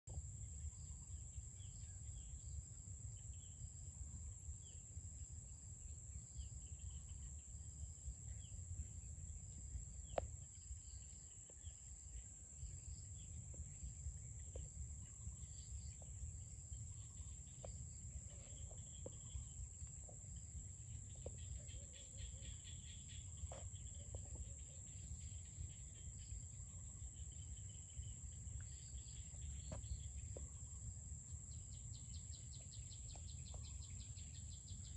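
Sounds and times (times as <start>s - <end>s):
insect trill: 0.1s - 34.9s
bird chirps: 31.5s - 34.9s.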